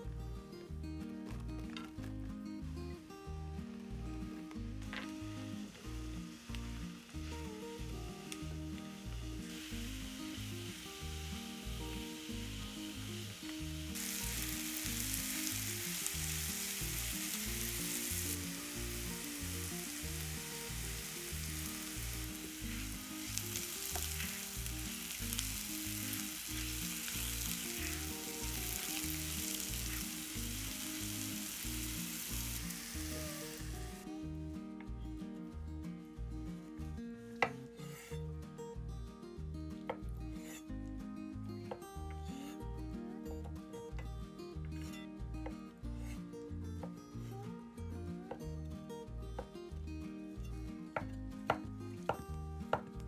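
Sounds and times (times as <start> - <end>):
food sizzling in a pan: 5.0 - 34.1
music with a steady beat: 33.6 - 53.0.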